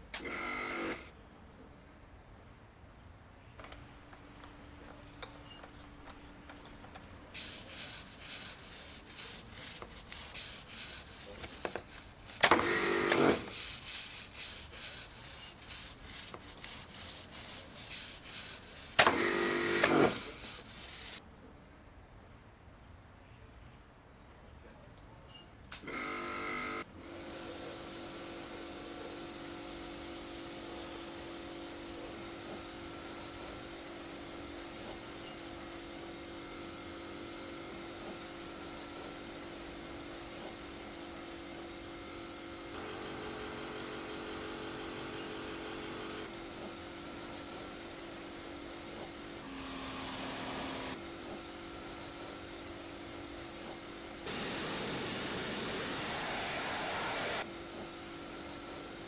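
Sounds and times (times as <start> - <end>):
water jet hissing: 7.4 - 21.2, 50.9 - 59.0
pressure washer motor whine: 54.2 - 57.4.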